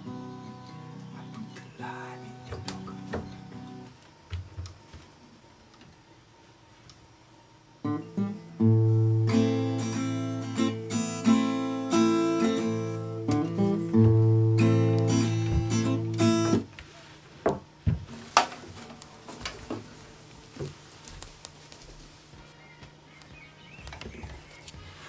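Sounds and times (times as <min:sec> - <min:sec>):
acoustic guitar strummed chords: 0:00.0 - 0:04.0, 0:07.8 - 0:16.7.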